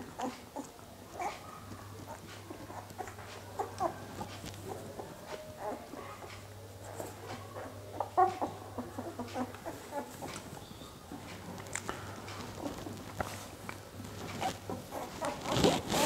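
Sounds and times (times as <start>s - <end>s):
puppy squeaking and grunting: 0.2s - 11.2s, 14.3s - 16.0s.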